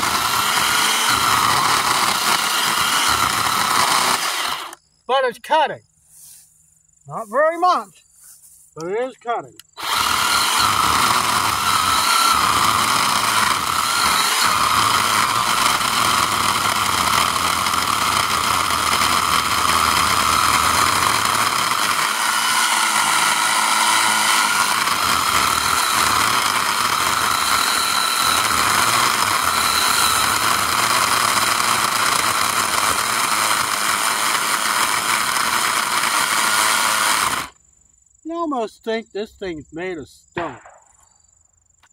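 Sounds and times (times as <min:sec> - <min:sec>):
chainsaw cutting wood: 0:00.0 - 0:04.8, 0:09.6 - 0:37.6.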